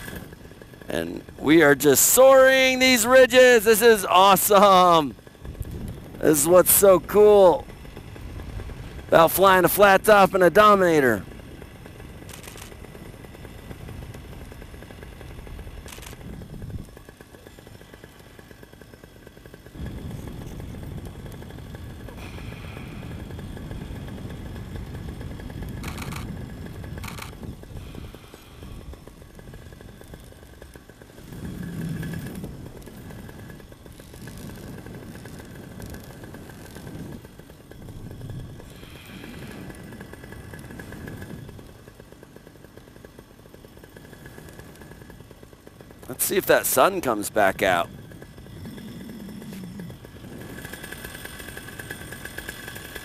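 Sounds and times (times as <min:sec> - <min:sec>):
paramotor engine drone: 0:00.0 - 0:53.0
wind rumble on microphone: 0:04.7 - 0:17.1, 0:19.8 - 0:30.6, 0:31.2 - 0:41.8.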